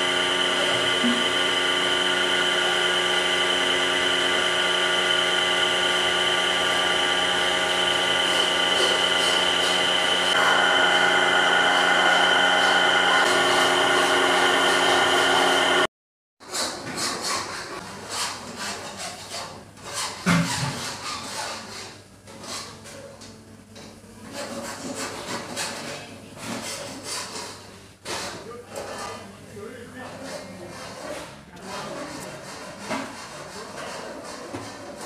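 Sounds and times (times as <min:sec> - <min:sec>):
milling machine gear whine: 0:00.0 - 0:15.9.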